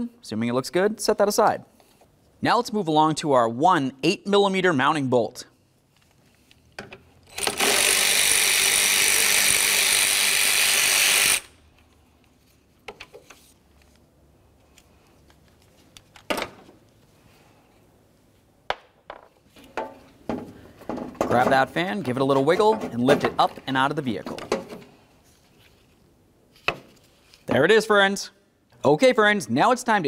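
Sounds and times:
power ratchet running: 0:07.3 - 0:11.6.

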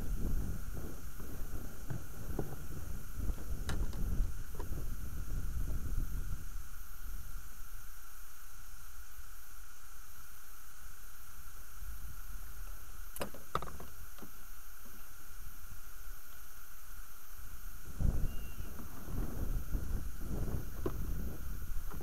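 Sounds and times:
low wind rumble: 0:00.0 - 0:08.0, 0:17.6 - 0:22.0
electronic hiss: 0:00.0 - 0:22.0.

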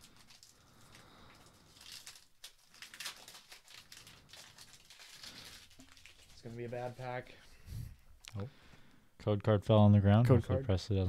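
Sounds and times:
foil wrapper crinkling: 0:00.0 - 0:07.2.

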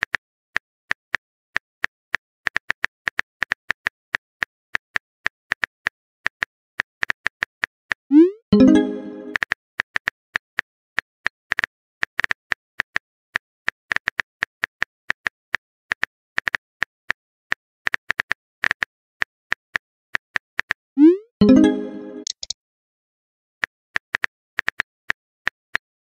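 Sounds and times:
keyboard typing clicks: 0:21.4 - 0:22.6.

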